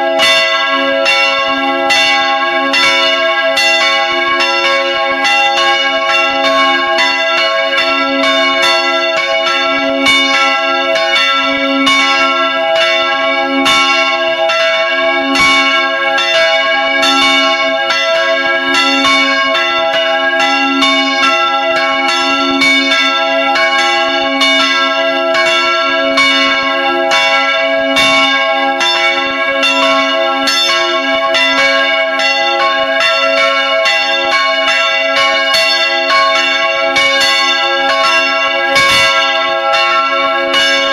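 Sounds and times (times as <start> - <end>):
church bells ringing: 0.0 - 40.9.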